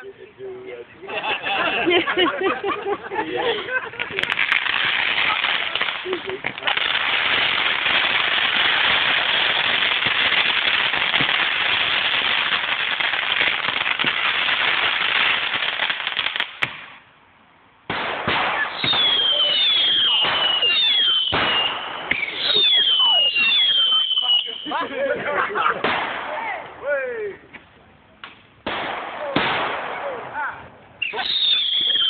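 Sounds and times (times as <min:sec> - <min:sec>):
firework fountain hissing and crackling: 0:01.1 - 0:17.1, 0:17.9 - 0:26.8, 0:30.9 - 0:32.0
firework cracks: 0:03.9 - 0:17.1, 0:17.8 - 0:24.9, 0:25.7 - 0:26.8, 0:27.6 - 0:32.0
whistling fireworks: 0:04.1 - 0:17.0, 0:17.9 - 0:24.9, 0:31.0 - 0:32.0.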